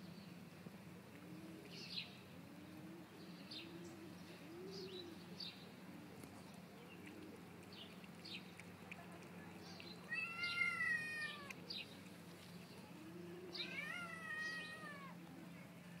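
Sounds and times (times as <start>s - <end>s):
cat meowing: 10.1s - 11.6s, 13.6s - 15.2s.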